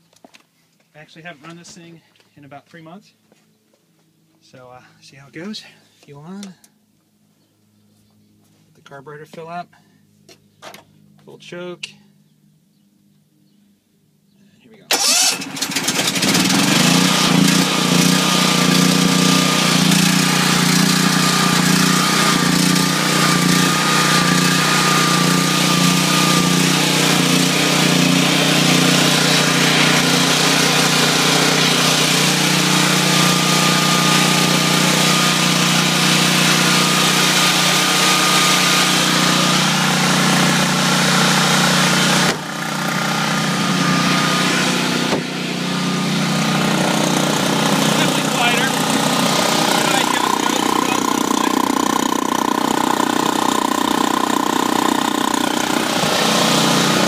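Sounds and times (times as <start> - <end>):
generator engine running: 14.9 - 57.0.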